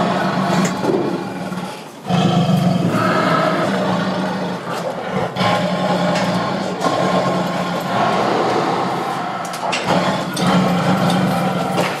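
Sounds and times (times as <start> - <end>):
lion growling: 0.0 - 12.0.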